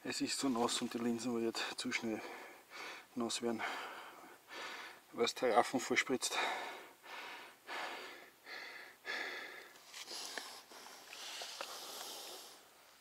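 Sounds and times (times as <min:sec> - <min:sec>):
man breathing hard: 0:02.2 - 0:05.1, 0:06.3 - 0:12.7.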